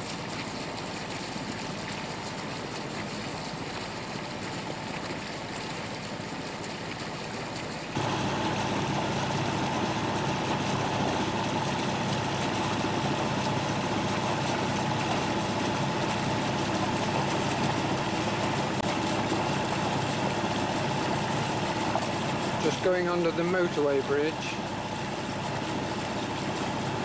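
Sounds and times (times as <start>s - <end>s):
boat engine droning: 3.2s - 27.0s
constant whine: 6.5s - 27.0s.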